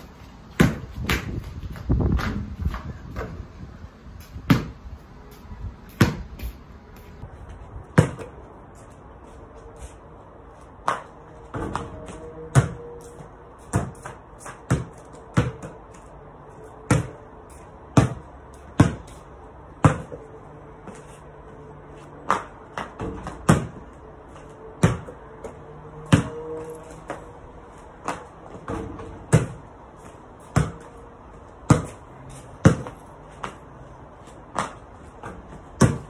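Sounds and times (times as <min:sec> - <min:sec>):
basketball bouncing on paving: 0:00.5 - 0:03.4, 0:04.3 - 0:04.8, 0:05.9 - 0:06.5, 0:07.8 - 0:08.4, 0:10.8 - 0:16.1, 0:16.8 - 0:17.3, 0:17.9 - 0:21.0, 0:22.2 - 0:36.0.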